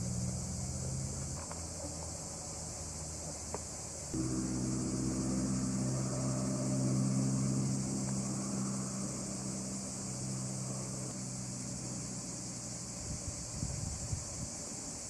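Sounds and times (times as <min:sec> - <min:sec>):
insects hissing: 0:00.0 - 0:15.0
distant engine humming: 0:04.2 - 0:14.6.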